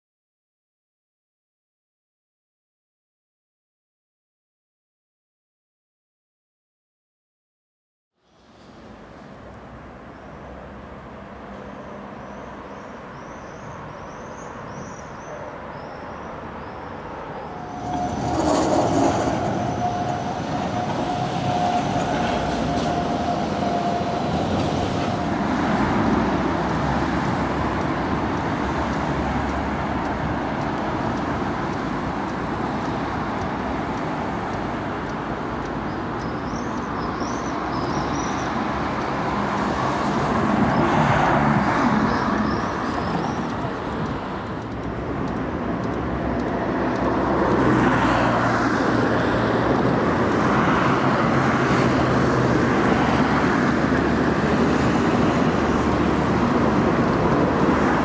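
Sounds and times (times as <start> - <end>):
tram passing on rails: 8.4 - 58.0
street rumble: 8.5 - 58.0
birds chirping: 11.8 - 17.1, 35.8 - 38.6.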